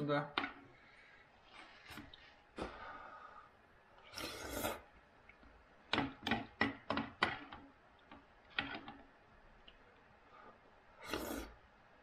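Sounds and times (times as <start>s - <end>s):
person slurping soup: 4.0s - 4.9s, 11.0s - 11.6s.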